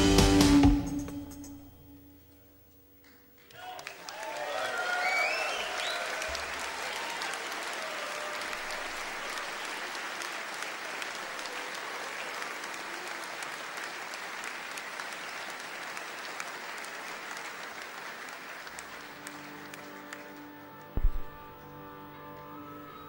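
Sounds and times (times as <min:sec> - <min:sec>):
audience applauding: 0:03.4 - 0:21.5.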